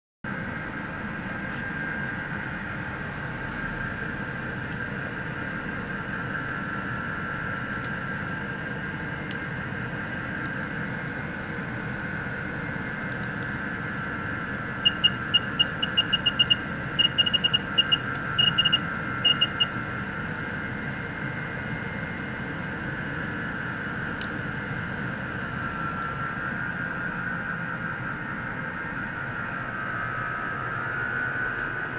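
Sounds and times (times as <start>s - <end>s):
faint wavering whine: 0.3s - 31.9s
short high electronic beeps: 14.8s - 19.7s.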